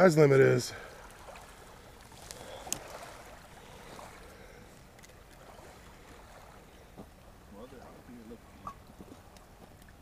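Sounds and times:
faint outdoor background noise: 0.0 - 10.0.

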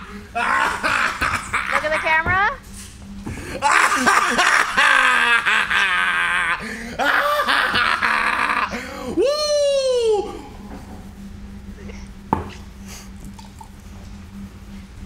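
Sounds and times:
man laughing: 0.0 - 2.2, 3.5 - 10.5
man yelling: 9.2 - 10.4.

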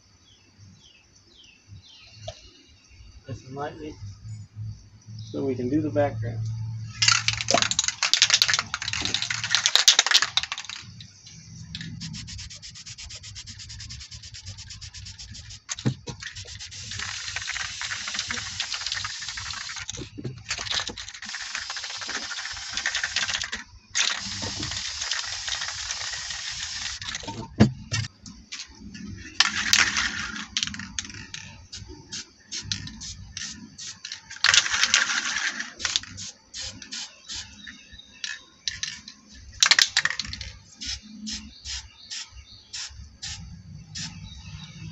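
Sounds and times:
spray paint can hissing: 7.0 - 11.0, 11.8 - 28.7, 29.4 - 37.6, 40.8 - 43.4, 44.0 - 44.3
spray can ball rattling: 7.0 - 43.4, 44.0 - 44.3.

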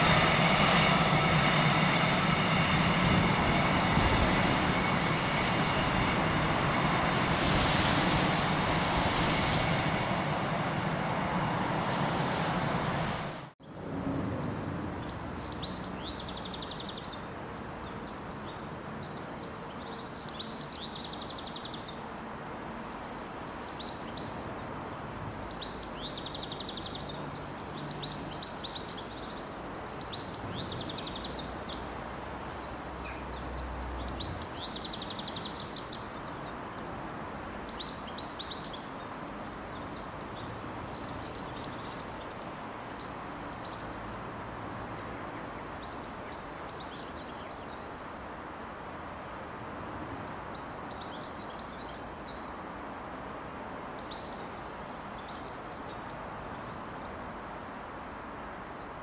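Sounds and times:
freight train wagons rumbling: 0.0 - 13.5
distant diesel locomotive rumble: 0.0 - 14.8.

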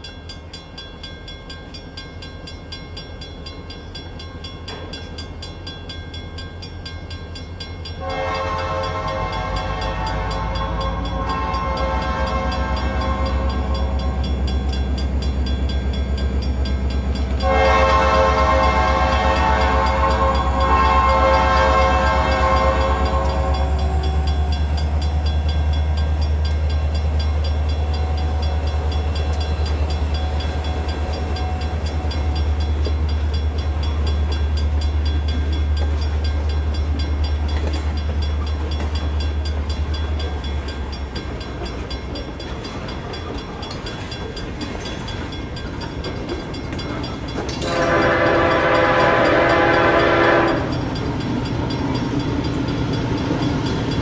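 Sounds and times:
diesel locomotive horn: 8.0 - 14.7, 17.3 - 26.5, 47.6 - 51.0.

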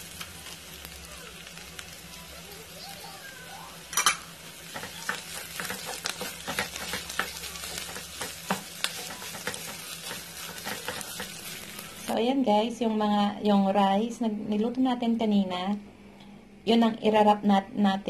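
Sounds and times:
filling sizzling in a frying pan: 0.0 - 12.2
wooden spoon scraping a pan: 4.7 - 12.1.

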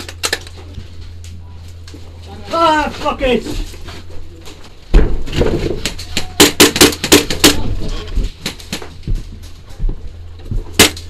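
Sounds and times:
airsoft gun firing: 6.4 - 7.6, 10.8 - 11.0.

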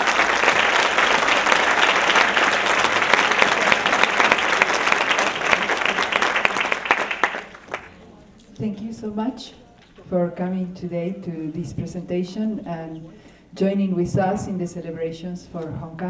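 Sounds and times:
large audience applauding: 0.0 - 8.0.

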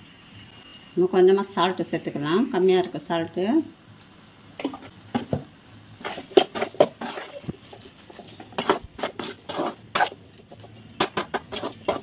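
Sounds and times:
metal spoon scraping a metal pan: 6.0 - 7.5, 8.1 - 12.0.

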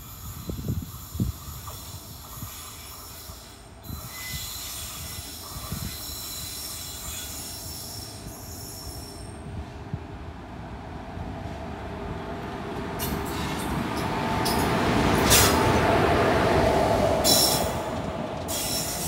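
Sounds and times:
train wheels squealing: 0.0 - 9.5, 17.2 - 19.0
train rumble: 0.0 - 19.0.

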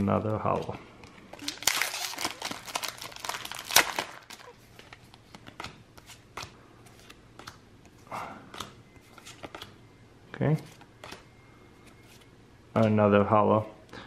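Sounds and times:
foil pack crinkling: 1.4 - 5.1.

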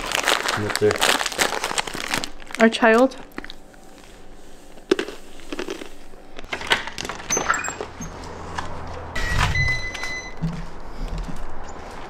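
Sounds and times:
high-pitched beep: 9.2 - 10.4.

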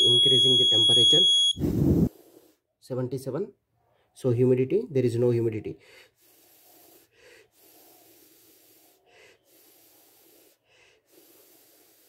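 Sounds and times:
person breathing hard: 5.8 - 12.0.

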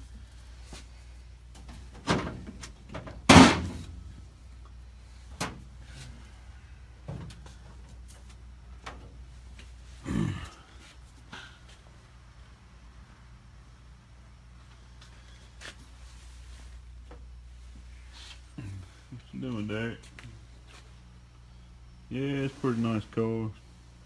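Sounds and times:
knocks and clunks: 1.6 - 3.9.

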